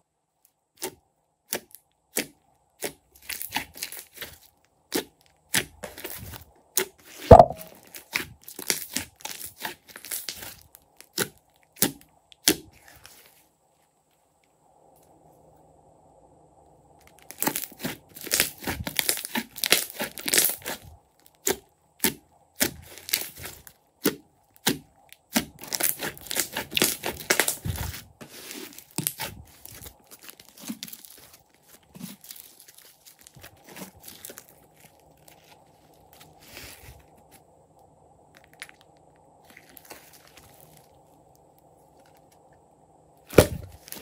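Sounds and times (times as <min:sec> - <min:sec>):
slime crackling and popping: 0:07.3 - 0:12.8, 0:17.0 - 0:36.2.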